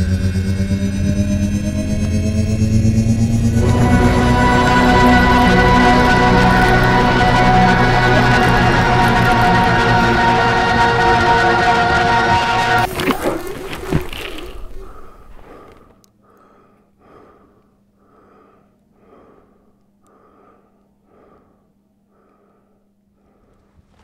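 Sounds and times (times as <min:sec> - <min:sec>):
music: 0:00.0 - 0:13.1
person breathing hard: 0:13.4 - 0:24.0.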